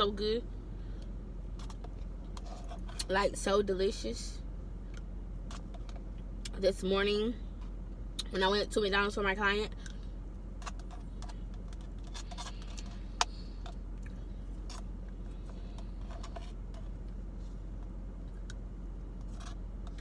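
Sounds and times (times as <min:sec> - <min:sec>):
plastic spoon scraping in cup: 0:01.6 - 0:03.0, 0:10.6 - 0:13.7, 0:14.6 - 0:17.0, 0:19.2 - 0:20.0.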